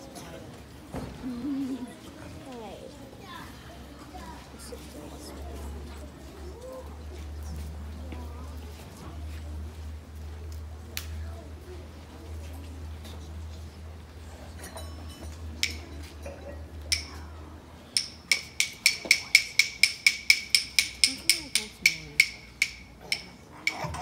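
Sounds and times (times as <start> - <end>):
rhythm sticks clicking: 16.9 - 17.2, 18.0 - 24.0.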